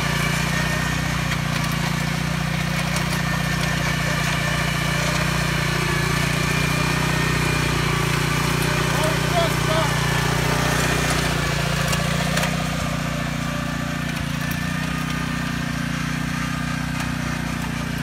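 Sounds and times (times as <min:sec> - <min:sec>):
tiller engine running: 0:00.0 - 0:18.0
tines churning soil: 0:00.0 - 0:18.0.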